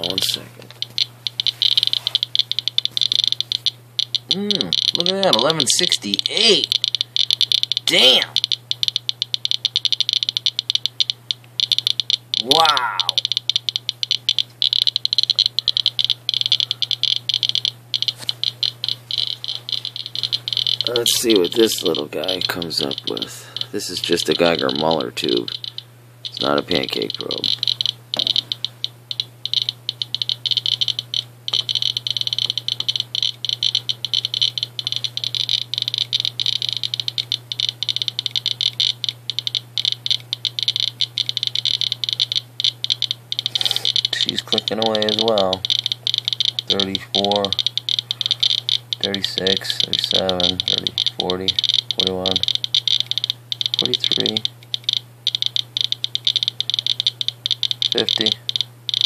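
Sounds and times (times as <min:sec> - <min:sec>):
geiger counter clicking rapidly: 0:00.0 - 0:59.0
low hum: 0:00.0 - 0:59.0
high-pitched whine: 0:14.7 - 0:29.6, 0:43.4 - 0:59.0.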